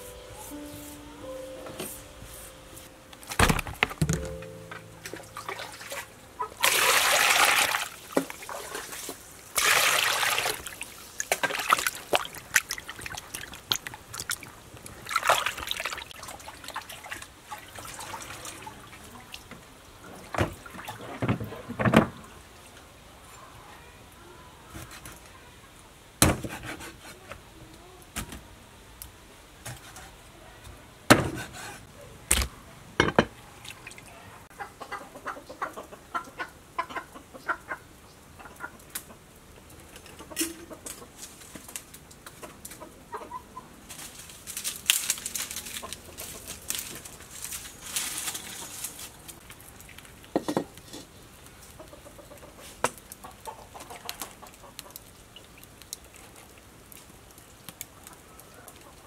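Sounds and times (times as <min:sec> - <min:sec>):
chickens clucking: 0:04.8 - 0:07.1, 0:34.1 - 0:39.3, 0:39.9 - 0:41.2, 0:42.3 - 0:43.8, 0:51.6 - 0:55.0.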